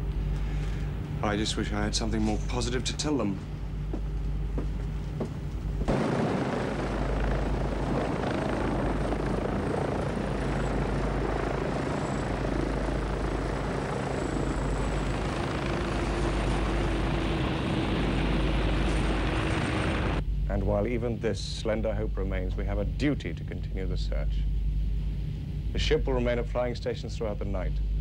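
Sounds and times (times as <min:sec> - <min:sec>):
helicopter rotor and engine: 0:00.5 - 0:20.2.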